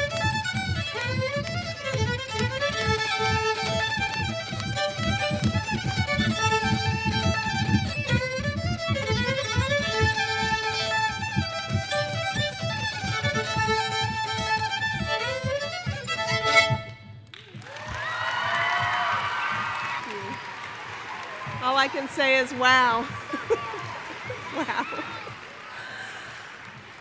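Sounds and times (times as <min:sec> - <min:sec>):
two violins playing a melody: 0:00.0 - 0:17.2
low rhythmic accompaniment: 0:00.0 - 0:19.7.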